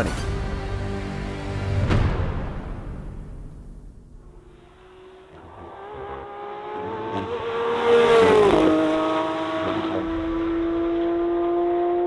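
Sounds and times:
racing car engine passing at high revs: 0:04.3 - 0:12.0.

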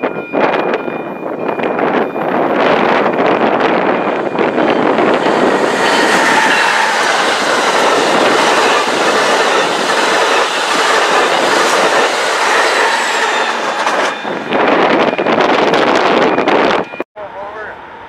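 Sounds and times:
train wheels clattering: 0:01.7 - 0:16.0.

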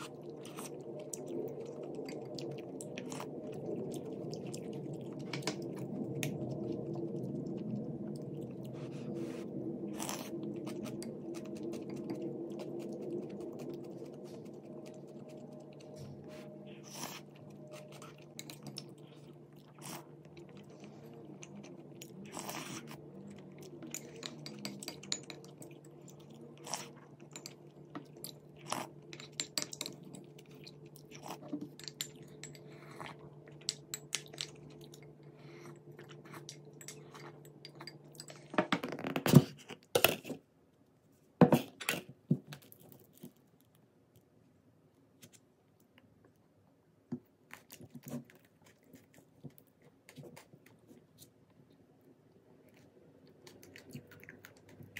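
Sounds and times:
chewing and crunching: 0:00.0 - 0:38.6, 0:41.7 - 0:44.3, 0:47.2 - 0:54.9
steady low hum: 0:00.0 - 0:38.8
utensils clicking on ceramic bowl: 0:23.9 - 0:25.5.

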